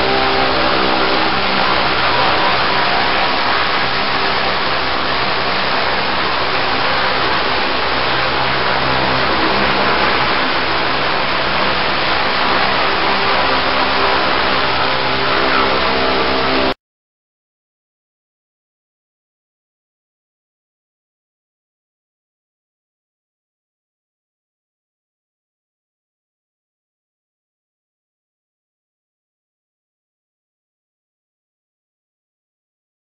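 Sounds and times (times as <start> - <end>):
water jet hissing on steel: 0.0 - 16.7
engine hum: 0.0 - 16.8.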